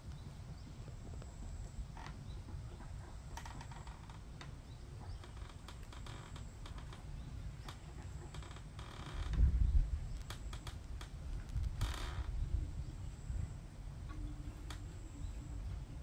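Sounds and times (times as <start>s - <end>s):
steady low rumble: 0.0s - 16.0s
small clicks and ticks: 5.2s - 9.5s, 10.1s - 12.2s.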